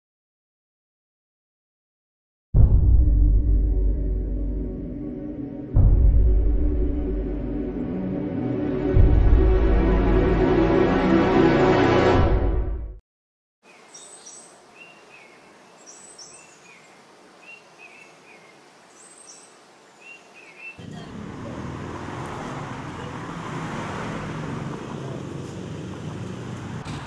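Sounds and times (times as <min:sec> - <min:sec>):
music: 0:02.6 - 0:13.0
street traffic hum: 0:20.8 - 0:27.0.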